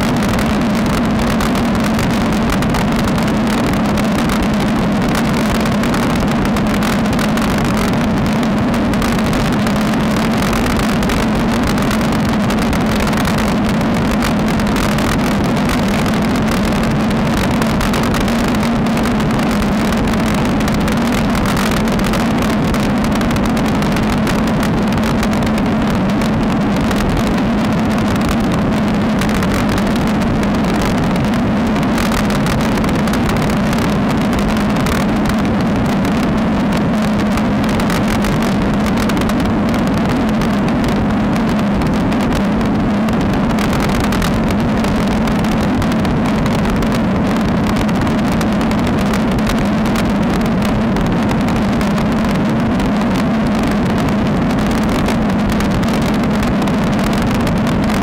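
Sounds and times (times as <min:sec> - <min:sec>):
constant low hum: 0:00.0 - 0:58.0
wind rush on microphone: 0:00.0 - 0:58.0.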